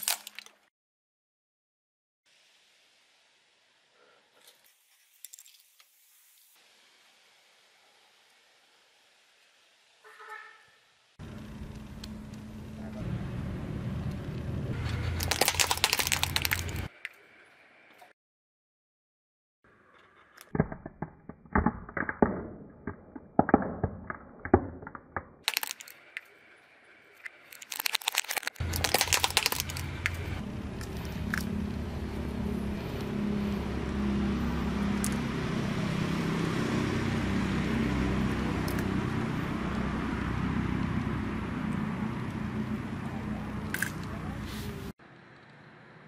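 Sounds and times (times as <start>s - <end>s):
plastic toys cracking under tyre: 0.0s - 0.6s, 15.2s - 16.9s, 20.1s - 26.2s, 27.2s - 31.5s, 43.7s - 44.1s
plastic toys clicking on asphalt: 15.0s - 17.1s, 20.2s - 26.3s, 27.2s - 31.6s, 38.6s - 38.9s, 43.6s - 44.3s.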